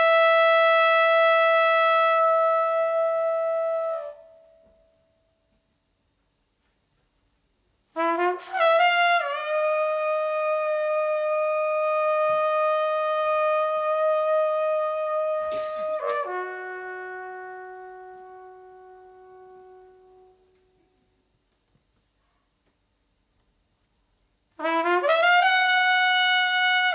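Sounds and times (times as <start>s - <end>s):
trumpet playing: 0.0s - 5.2s, 7.9s - 20.9s, 24.6s - 26.9s.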